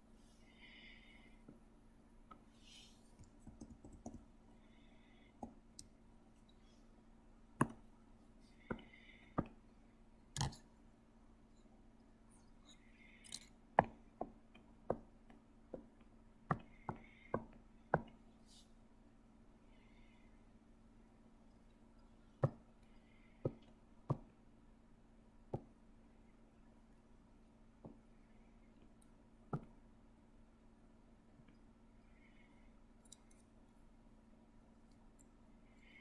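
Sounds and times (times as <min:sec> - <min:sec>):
computer mouse clicking: 0:03.2 - 0:04.3.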